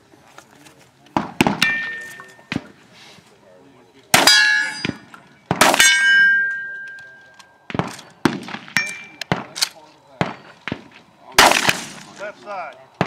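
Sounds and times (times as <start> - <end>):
steel targets ringing: 1.6 - 2.5, 4.2 - 7.3, 8.7 - 9.3
gunshot cracks: 11.4 - 12.2.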